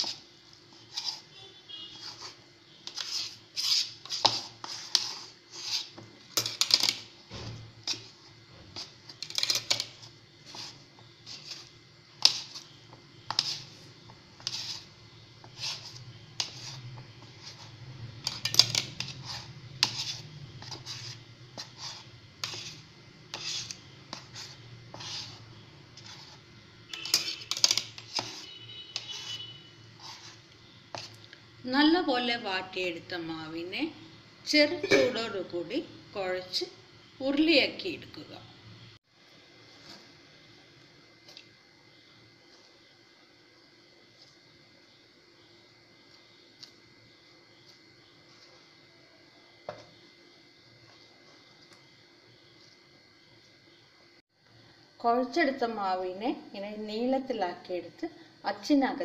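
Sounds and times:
utensil scraping flour in bowl: 0.0 - 7.1, 7.8 - 31.3.

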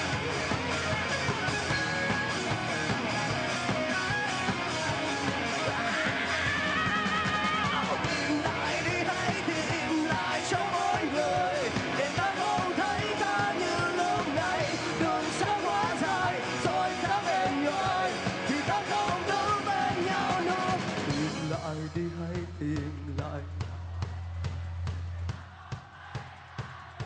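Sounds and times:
rock band playing live: 0.0 - 25.3
man shouting lead vocal: 8.0 - 22.1.

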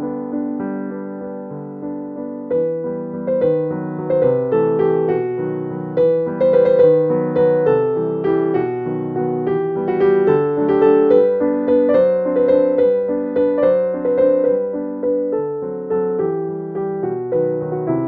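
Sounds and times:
gentle piano music: 0.0 - 18.0.

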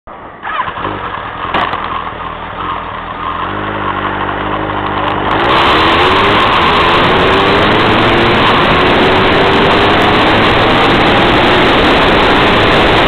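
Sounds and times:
vehicle engine speeding up: 0.4 - 13.0
rushing wind noise: 5.1 - 13.0.

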